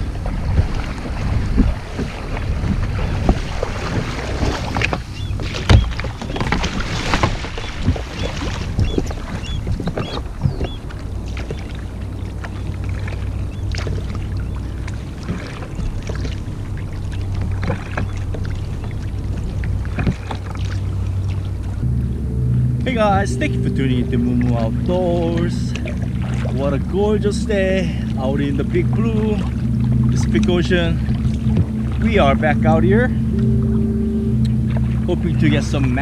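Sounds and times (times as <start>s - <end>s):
paddle strokes splashing: 0.0s - 33.7s
paddle knocking against hull: 0.1s - 21.9s
low rumble: 8.7s - 36.0s.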